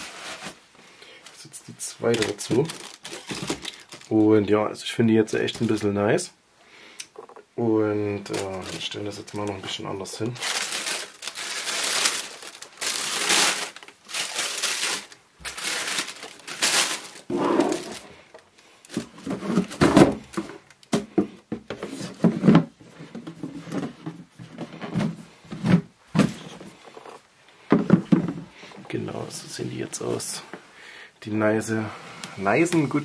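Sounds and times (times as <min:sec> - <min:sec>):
tissue paper rustling: 0:00.0 - 0:00.6, 0:02.0 - 0:04.2, 0:08.3 - 0:18.2.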